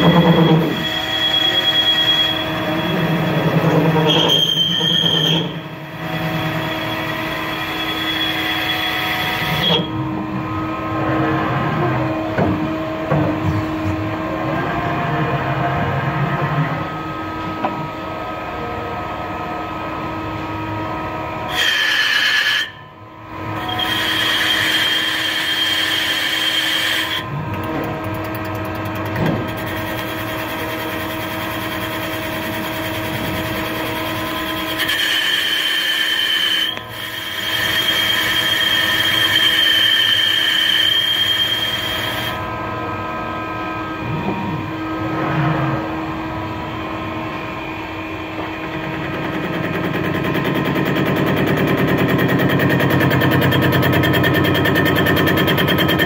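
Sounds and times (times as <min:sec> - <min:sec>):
high-pitched cutting tool sound: 0:00.0 - 0:10.0, 0:21.5 - 0:22.8, 0:23.6 - 0:27.3, 0:29.5 - 0:42.5
lathe spindle humming and whining: 0:00.0 - 0:56.0.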